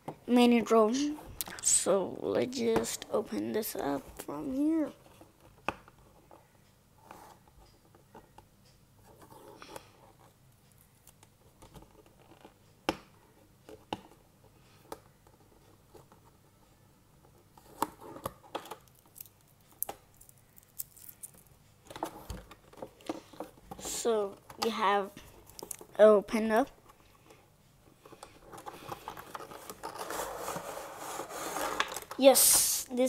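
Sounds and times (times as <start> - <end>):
cardboard scraping and rustling: 28.5 - 32.7.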